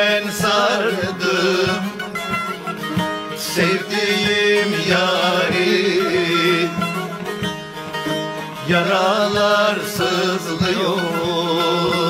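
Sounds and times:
man singing: 0.0 - 2.0, 3.4 - 7.0, 8.6 - 12.0
long-necked lutes playing folk tune: 0.0 - 12.0.

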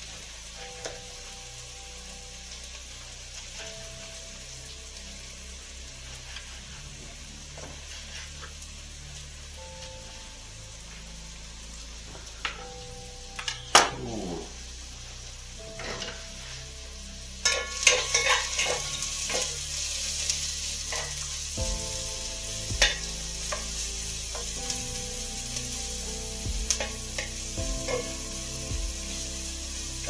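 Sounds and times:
food sizzling in pan: 0.0 - 30.0
utensil scraping and knocking pan: 17.4 - 19.6.

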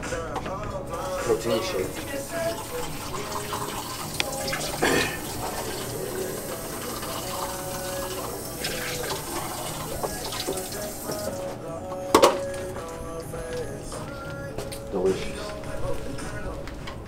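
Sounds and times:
water running from a tap: 1.0 - 11.4
container clunking: 12.0 - 12.8.

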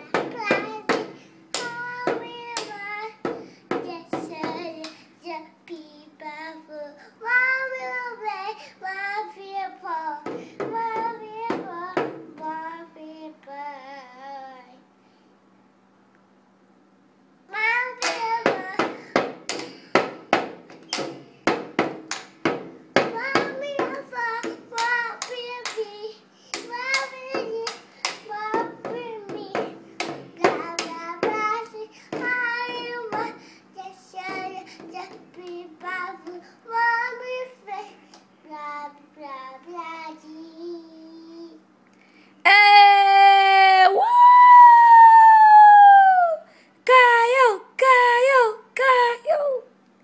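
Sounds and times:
toddler singing: 0.0 - 14.8, 17.5 - 19.6, 23.0 - 41.6.

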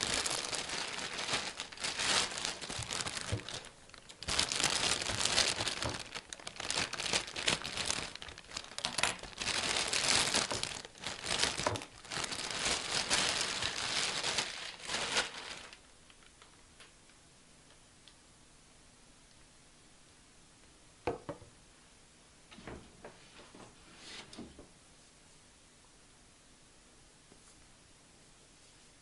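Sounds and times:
plastic bag crinkling: 0.0 - 16.6.

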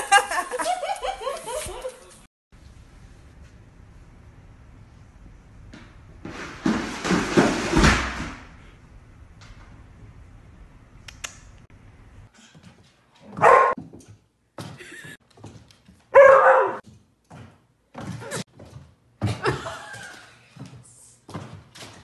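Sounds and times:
dog barking: 13.3 - 13.8, 16.1 - 16.8.

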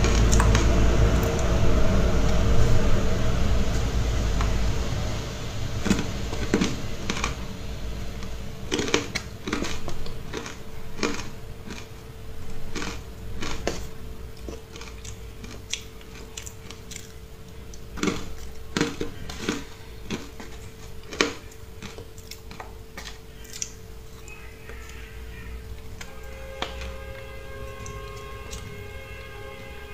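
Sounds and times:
faint steady hum: 0.0 - 29.9
crisp crunching of frozen ice: 8.2 - 12.0, 12.6 - 17.2, 17.9 - 25.0.

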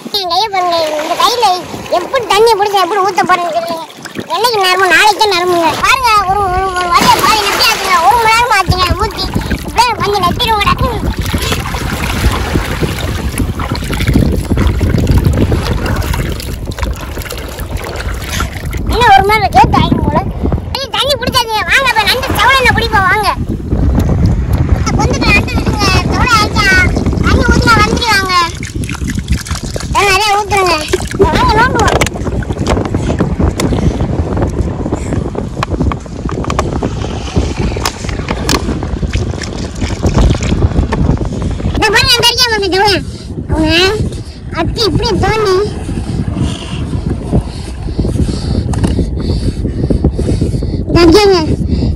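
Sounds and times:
wind buffeting microphone: 0.0 - 51.9
water splashing into plastic bottle: 11.0 - 18.9, 27.9 - 32.8.

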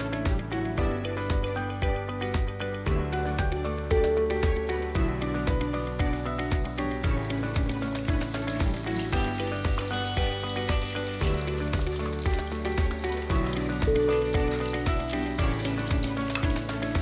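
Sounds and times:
background music with beat: 0.0 - 17.0
food deep-frying in oil: 7.1 - 17.0.

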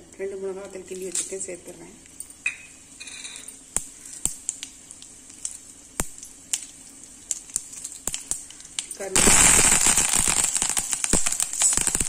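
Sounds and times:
oil sizzling: 0.8 - 12.0.

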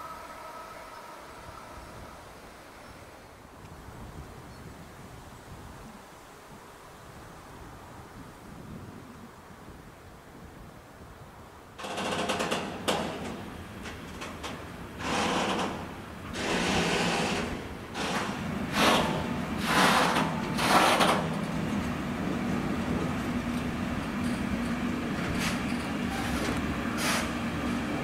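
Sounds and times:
freight train passing: 0.0 - 4.1, 12.4 - 28.0.

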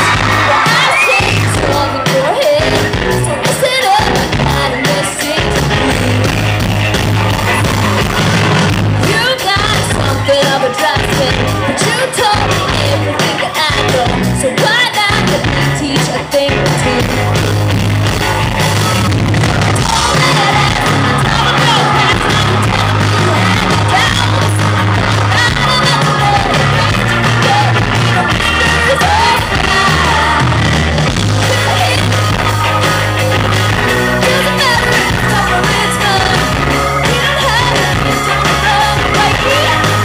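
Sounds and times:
bass: 0.0 - 40.0
drums: 0.0 - 40.0
electric guitar: 0.0 - 40.0
keyboard: 0.0 - 40.0
people singing into microphones: 19.8 - 33.2, 34.2 - 40.0.

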